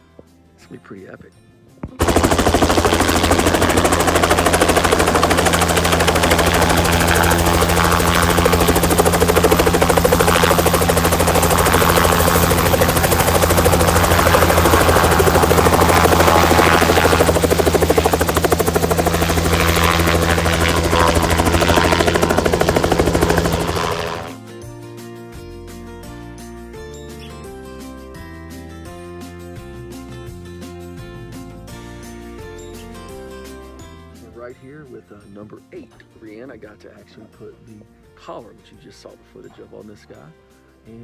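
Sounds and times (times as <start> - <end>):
helicopter rotor chopping: 1.9 - 24.4
low engine drone: 2.0 - 24.4.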